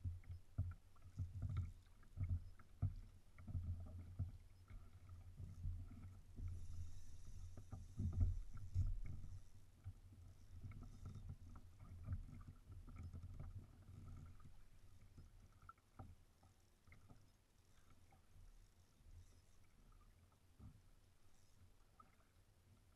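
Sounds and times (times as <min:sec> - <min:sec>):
light clicks and knocks: 0:00.0 - 0:10.0.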